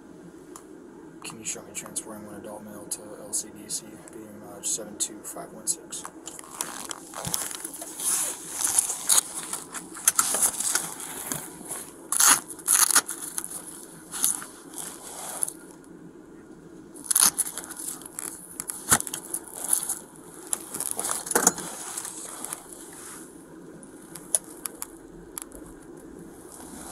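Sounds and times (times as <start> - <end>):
clothing rubbing on microphone: 6.0 - 15.8, 17.0 - 25.0, 25.6 - 26.9.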